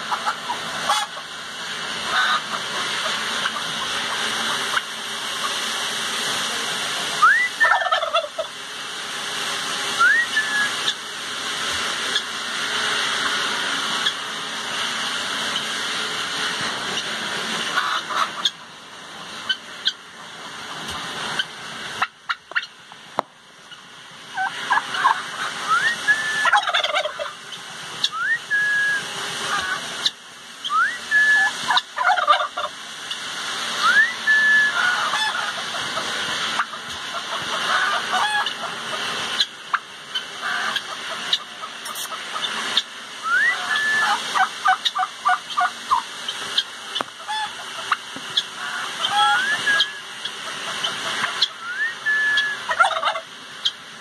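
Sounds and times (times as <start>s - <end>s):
turkey gobbling: 0.0s - 5.7s, 7.2s - 8.6s, 10.0s - 11.0s, 11.6s - 14.2s, 16.9s - 22.8s, 23.7s - 53.8s
birds whistling short rising calls: 7.2s - 7.8s, 10.0s - 11.0s, 25.6s - 26.5s, 28.0s - 29.1s, 30.6s - 31.5s, 33.8s - 34.9s, 43.2s - 44.2s, 49.1s - 50.1s, 51.4s - 52.7s.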